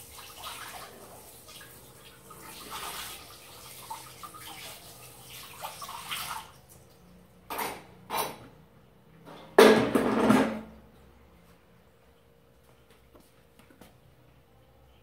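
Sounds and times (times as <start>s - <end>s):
tap water running: 0.0s - 7.6s.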